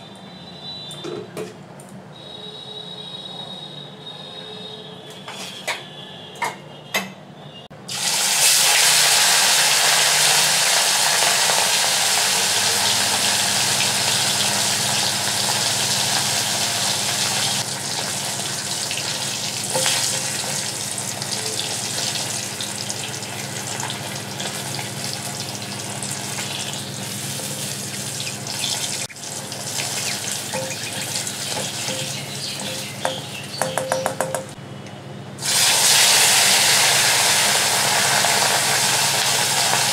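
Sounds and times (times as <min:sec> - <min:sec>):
fish frying in hot oil: 0:07.9 - 0:33.6, 0:35.4 - 0:39.9.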